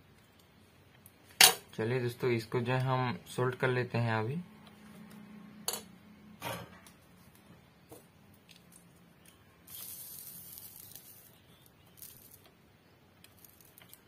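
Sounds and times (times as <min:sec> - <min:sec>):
flux sizzling hiss: 0:09.6 - 0:12.5.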